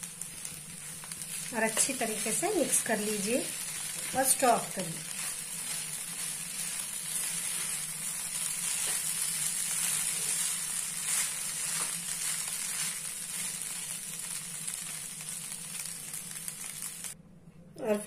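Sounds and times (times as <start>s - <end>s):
rice sizzling in a pan: 0.0s - 17.2s
spatula scraping a pan: 3.6s - 13.5s.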